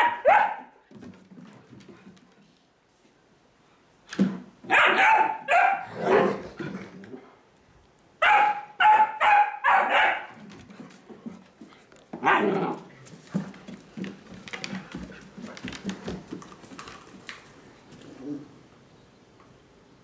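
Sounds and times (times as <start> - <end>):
dog play barking: 0.0 - 0.8, 4.6 - 6.5, 8.2 - 11.4, 12.1 - 13.1
dogs scuffling: 0.0 - 2.7, 10.1 - 18.4
claws clicking on wooden floor: 10.4 - 18.1.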